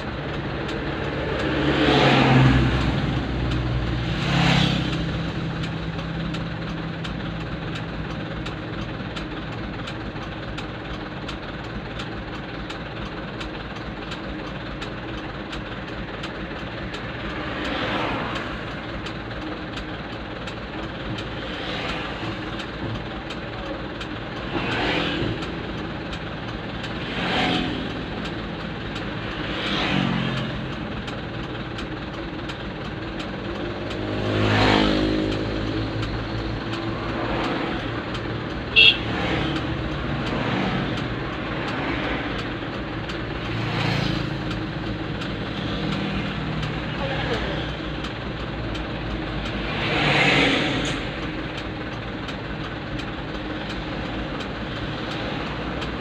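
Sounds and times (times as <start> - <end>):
cars and motorcycles passing: 0.0 - 9.8, 15.9 - 56.0.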